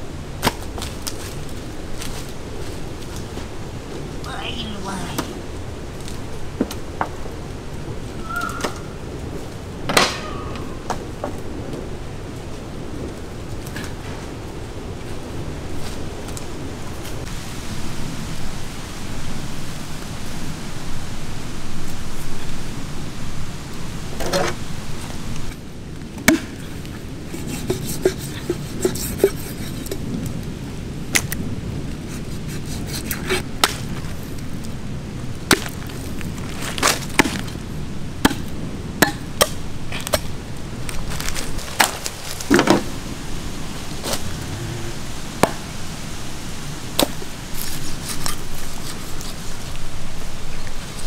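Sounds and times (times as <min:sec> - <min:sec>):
heavy knife chopping onto wood: 0:38.2 - 0:40.2.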